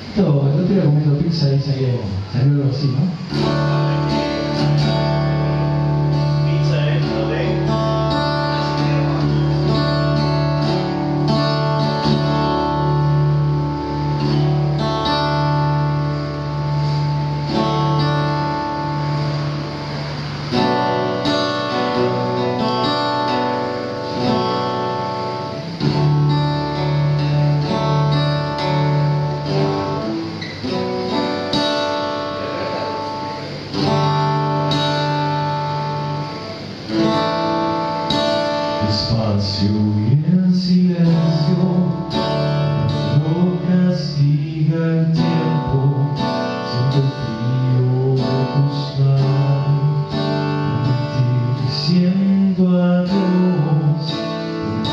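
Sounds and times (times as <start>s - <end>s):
acoustic guitar chords: 0.0s - 54.9s
man singing: 38.7s - 54.9s.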